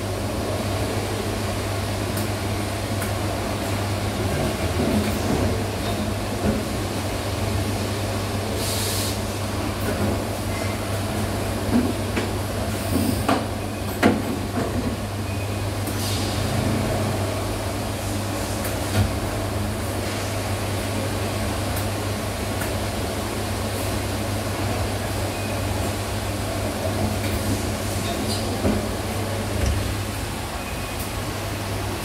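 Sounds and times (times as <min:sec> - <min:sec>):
pneumatic hiss: 0:08.6 - 0:09.2, 0:15.9 - 0:16.6.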